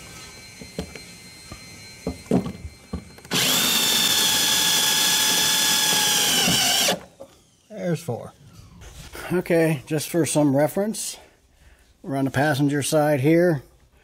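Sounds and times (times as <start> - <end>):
cordless drill driving a screw: 3.2 - 7.6.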